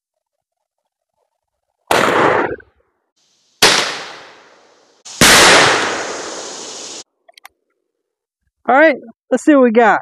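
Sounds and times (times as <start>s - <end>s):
shotgun blasts: 1.9s - 2.6s, 3.6s - 7.0s.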